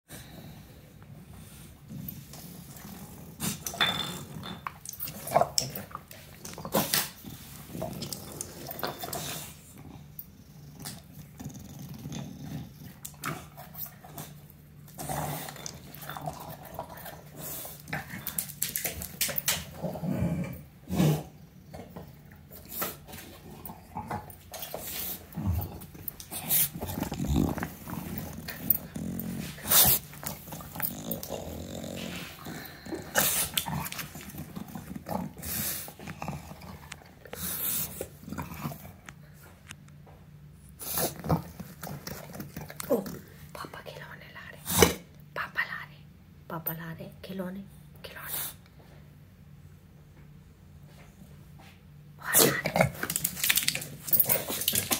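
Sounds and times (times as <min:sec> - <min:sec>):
dog growling and grunting: 0:01.8 - 0:18.5, 0:19.4 - 0:39.2, 0:40.9 - 0:43.5, 0:52.2 - 0:54.9.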